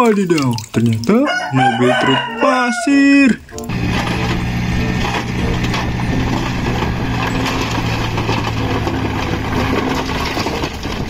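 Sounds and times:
diesel engine running: 3.7 - 11.0
rubble sliding and spilling: 3.7 - 11.0.

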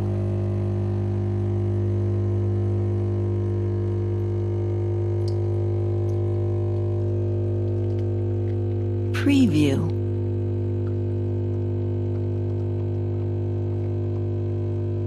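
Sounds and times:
espresso machine pump humming: 0.0 - 9.1, 10.6 - 15.0.

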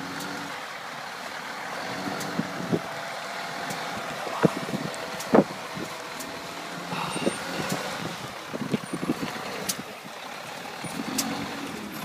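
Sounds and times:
car engine running: 0.0 - 12.0
wind noise on microphone: 2.2 - 3.0, 3.9 - 6.0, 7.1 - 10.0.

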